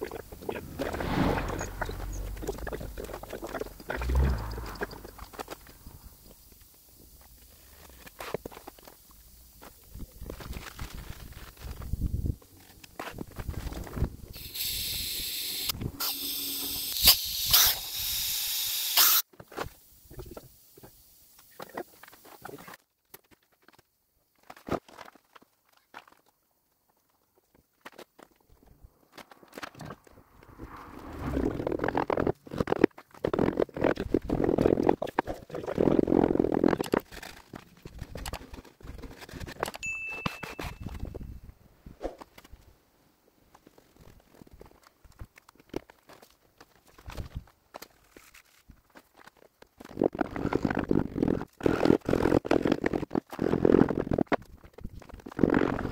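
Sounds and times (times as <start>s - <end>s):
gas hissing from hose nozzle: 14.4s - 19.2s.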